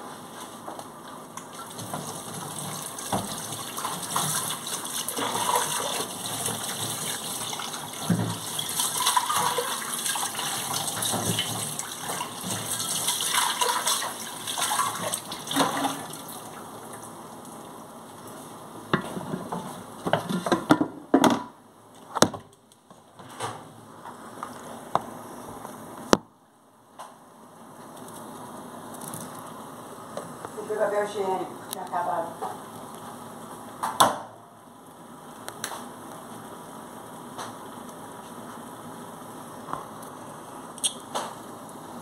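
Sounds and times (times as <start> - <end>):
pots and dishes clattering: 19.0 - 21.4.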